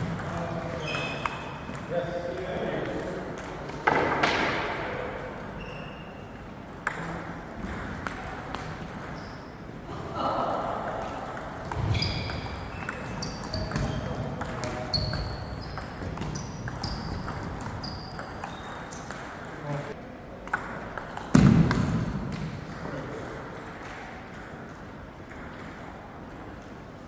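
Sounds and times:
table tennis balls clicking: 6.6 - 9.8, 10.8 - 19.6.

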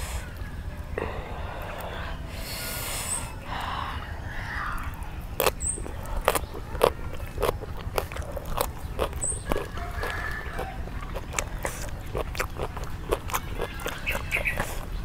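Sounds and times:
chewing raw carrot crunches: 4.5 - 15.0.

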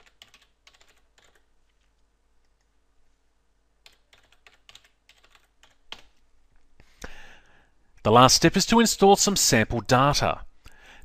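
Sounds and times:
faint keyboard typing: 0.0 - 2.8, 3.8 - 6.2.

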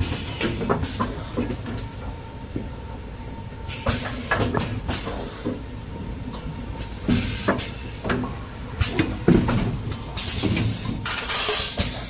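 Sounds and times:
machine hisses and knocks: 8.9 - 12.0.

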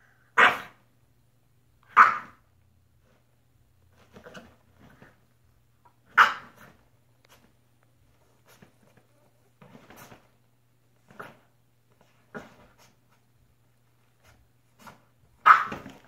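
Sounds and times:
dog barking: 0.3 - 0.8, 1.9 - 2.4, 6.1 - 6.7, 15.4 - 16.0.

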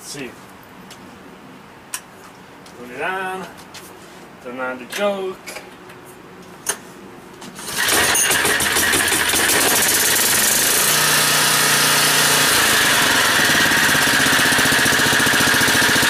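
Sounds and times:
generator engine running: 7.6 - 16.0.

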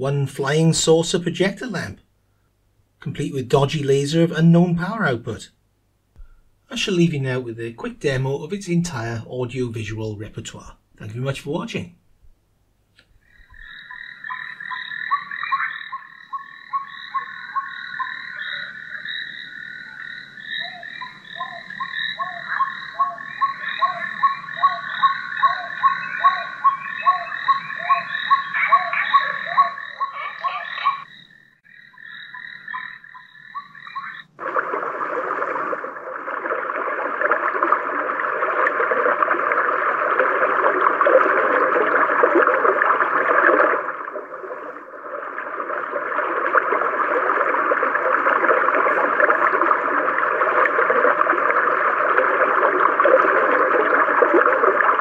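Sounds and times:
frogs croaking: 13.1 - 55.0
rushing water noise: 34.3 - 55.0.

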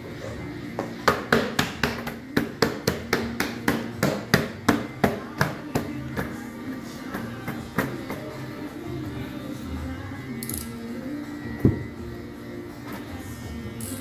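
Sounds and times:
rapid hammering: 1.1 - 6.4.

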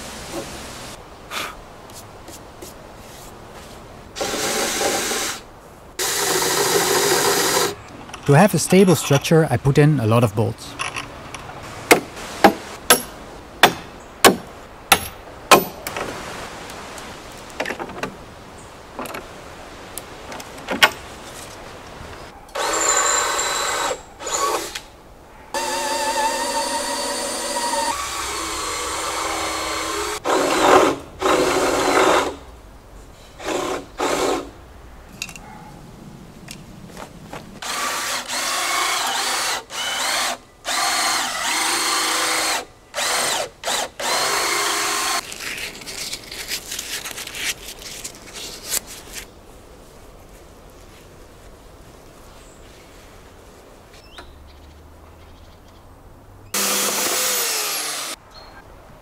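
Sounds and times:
power drill whining: 22.6 - 24.8, 25.6 - 30.7, 37.6 - 45.2, 56.6 - 58.2.

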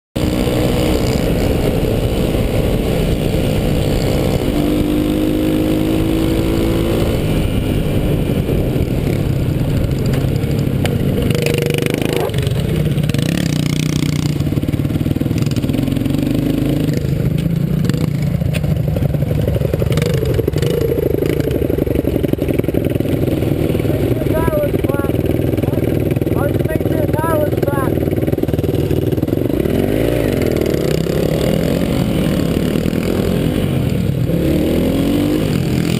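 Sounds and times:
dirt bike engine revving: 0.2 - 35.9.

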